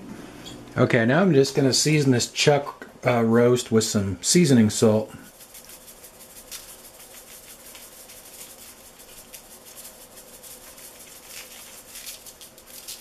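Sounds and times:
salt shaker rattling: 0:05.3 - 0:13.0.

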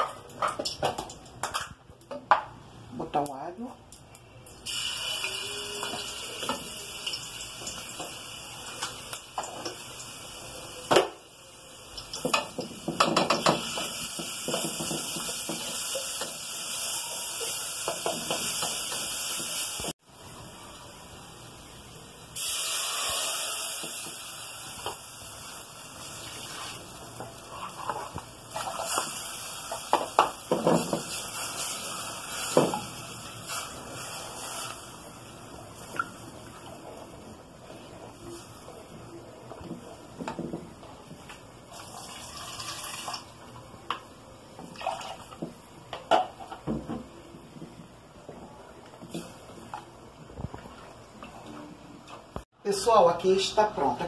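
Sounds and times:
garlic sizzling in a pot: 0:04.5 - 0:43.3
spoon stirring and scraping a pot: 0:26.3 - 0:29.1.

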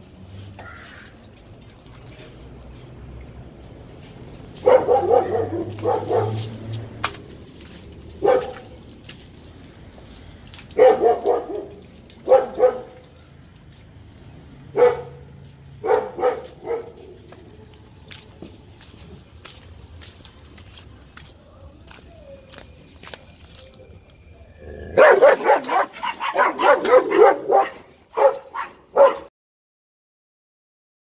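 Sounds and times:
dogs barking: 0:04.6 - 0:06.7, 0:08.2 - 0:08.8, 0:10.7 - 0:13.3, 0:14.7 - 0:17.8, 0:24.8 - 0:29.3.

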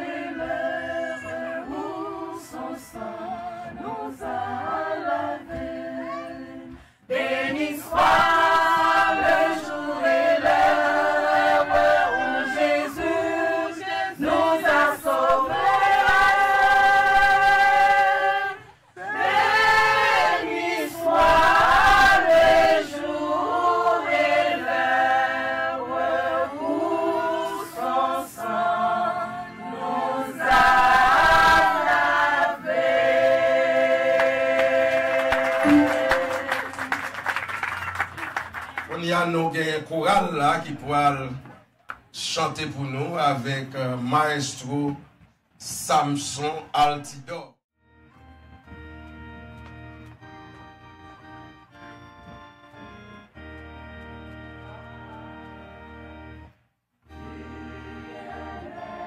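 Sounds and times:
choir singing: 0:00.0 - 0:37.1, 0:54.3 - 0:56.3, 0:57.1 - 0:59.0.

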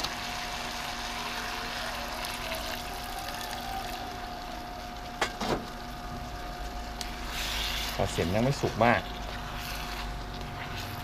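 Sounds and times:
water pouring into a wok: 0:00.0 - 0:05.2
broth boiling: 0:00.0 - 0:11.0.

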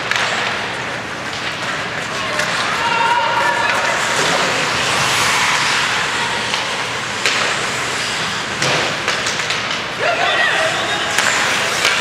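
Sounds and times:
hockey stick or puck clacks: 0:00.0 - 0:02.8, 0:06.5 - 0:07.7, 0:08.5 - 0:10.0, 0:11.1 - 0:12.0
skate blades on ice: 0:00.0 - 0:12.0
spectators' voices: 0:00.4 - 0:12.0.

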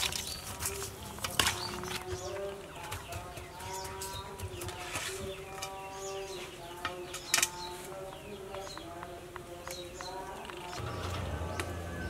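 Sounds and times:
birds chirping: 0:00.0 - 0:12.0
farm animals calling: 0:05.7 - 0:12.0.

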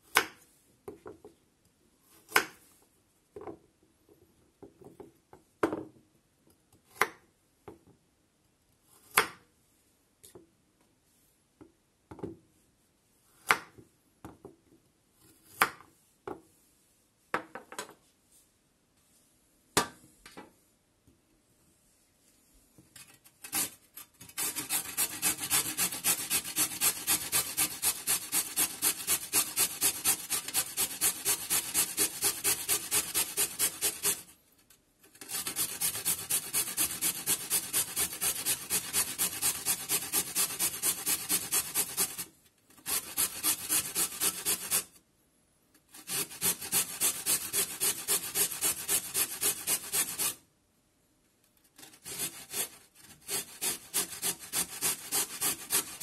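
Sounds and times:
carrot scraping on grater: 0:23.4 - 0:34.3, 0:35.1 - 0:44.9, 0:46.0 - 0:50.4, 0:51.8 - 0:56.0.

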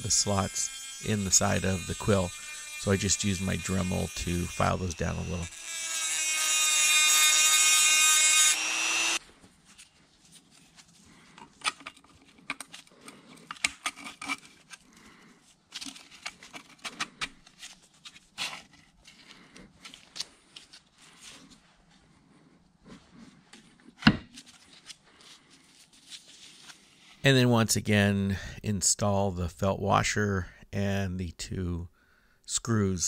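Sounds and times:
rotary tool grinding whine: 0:00.0 - 0:09.2.

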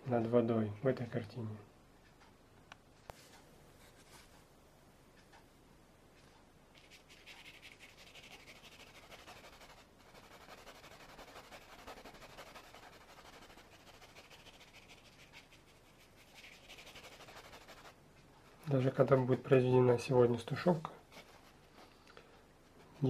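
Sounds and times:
paintbrush brushing on wood: 0:06.8 - 0:19.4, 0:21.0 - 0:22.0.

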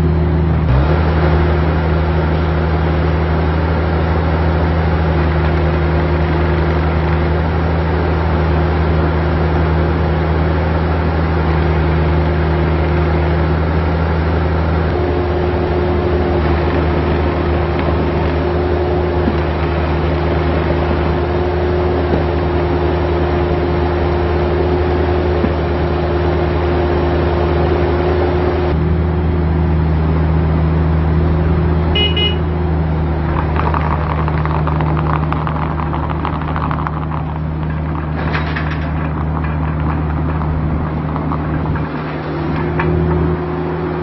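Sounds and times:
diesel engine running: 0:00.0 - 0:44.0
high beep: 0:32.0 - 0:32.4.

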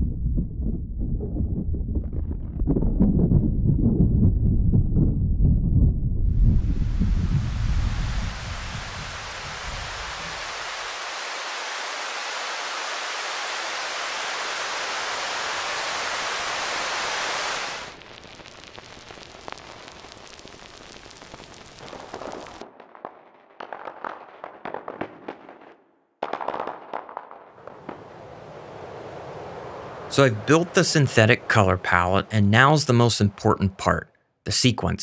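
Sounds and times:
synthesized rain hiss: 0:06.6 - 0:22.6, 0:27.6 - 0:33.4.

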